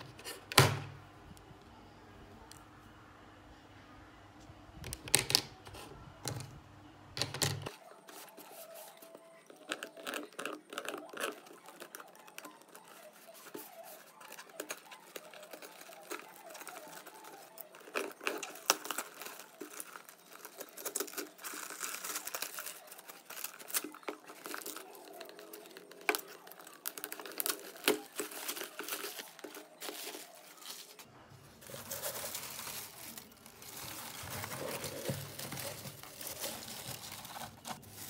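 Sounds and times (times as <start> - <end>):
paper wrapping rustling and tearing: 7.7 - 38.0.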